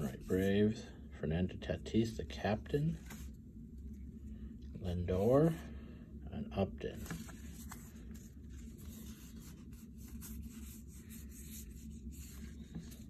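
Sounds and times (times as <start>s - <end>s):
cards shuffling: 6.9s - 13.0s.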